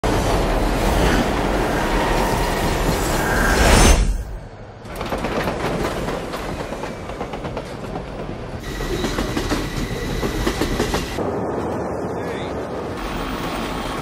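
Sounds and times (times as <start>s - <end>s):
subway train rattling clatter: 4.7s - 14.0s.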